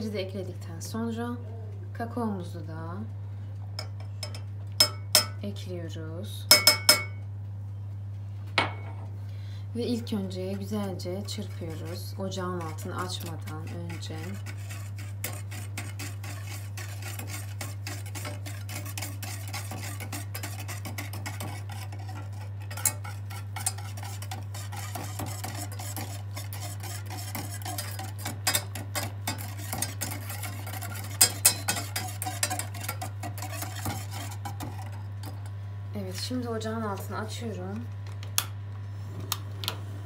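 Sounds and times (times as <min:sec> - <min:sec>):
whisk scraping metal pot: 0:09.8 - 0:35.5
whisk striking pot side: 0:12.6 - 0:34.9.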